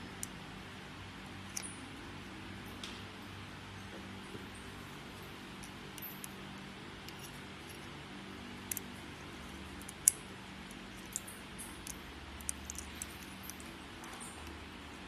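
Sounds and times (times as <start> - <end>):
steady low hum: 0.0 - 15.0
small metallic clicks: 0.1 - 0.4, 1.4 - 1.8, 5.5 - 6.4, 7.0 - 7.9, 8.6 - 15.0.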